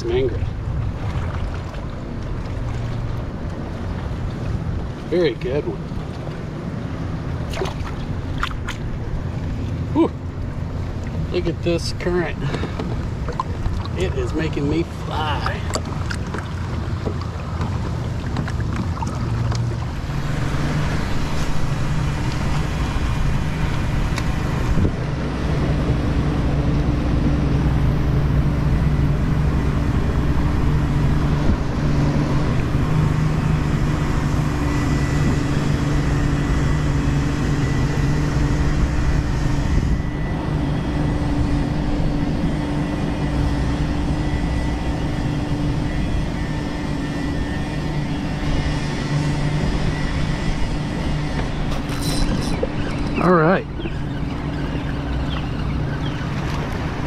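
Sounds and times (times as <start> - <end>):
low engine drone: 0.0 - 57.0
wind on microphone: 15.2 - 57.0.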